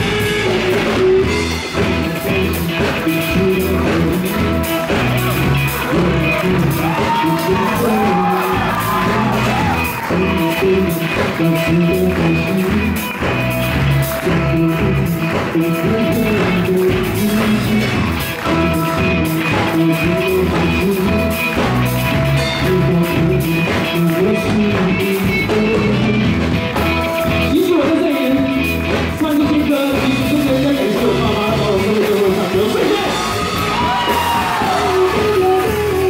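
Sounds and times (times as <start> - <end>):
drum kit: 0.0 - 36.0
electric bass: 0.0 - 36.0
electric guitars: 0.0 - 36.0
man singing into a microphone: 0.7 - 4.6, 5.7 - 13.2, 14.2 - 33.2, 34.6 - 36.0.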